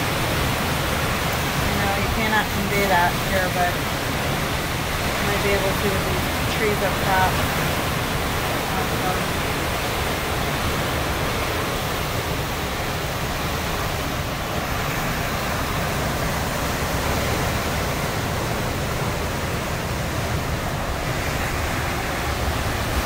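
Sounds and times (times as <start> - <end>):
heavy rain: 0.0 - 23.0
strong wind through trees: 0.0 - 23.0.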